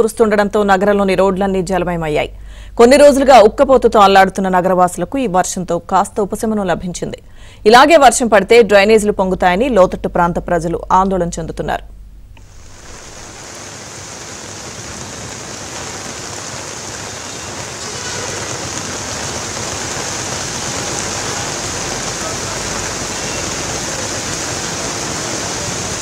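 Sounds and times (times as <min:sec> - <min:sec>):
heavy rain on flooded street: 0:12.5 - 0:26.0.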